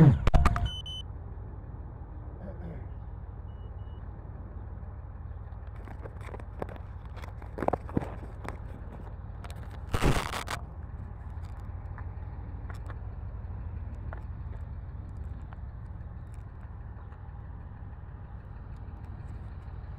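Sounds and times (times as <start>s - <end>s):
steady low rumble: 0.0s - 19.9s
camera handling scrape: 9.5s - 10.6s.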